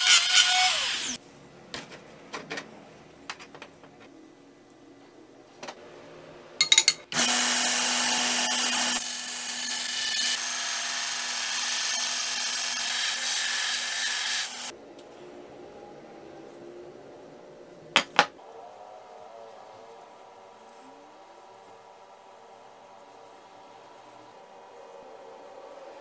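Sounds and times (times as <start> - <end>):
belt grinder grinding steel: 0.0 - 1.2, 7.2 - 14.7.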